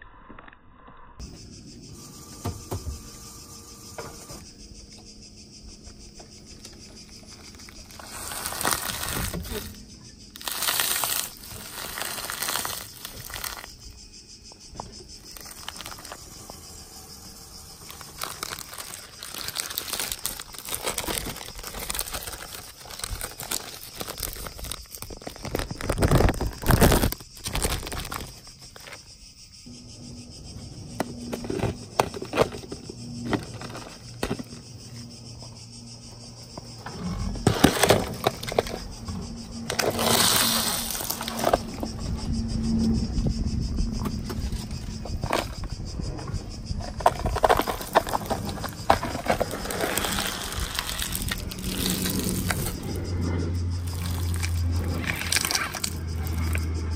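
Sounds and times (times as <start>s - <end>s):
snack bag crinkling: 7.3s - 9.8s, 10.4s - 13.8s, 15.2s - 16.5s, 17.7s - 29.0s, 39.7s - 41.6s, 46.9s - 52.8s, 53.8s - 56.7s.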